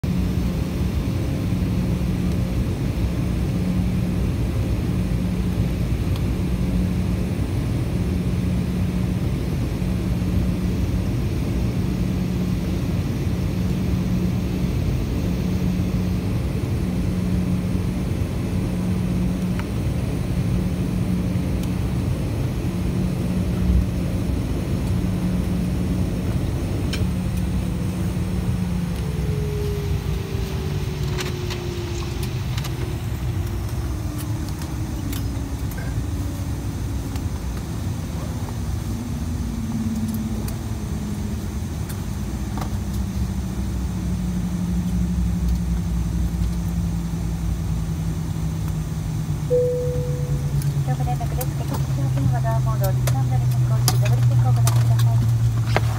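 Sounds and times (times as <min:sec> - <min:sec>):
jet engines rumbling in cabin: 0:00.0 - 0:55.9
pulsing low hum: 0:00.0 - 0:55.9
tone sliding down in pitch: 0:49.5 - 0:50.9.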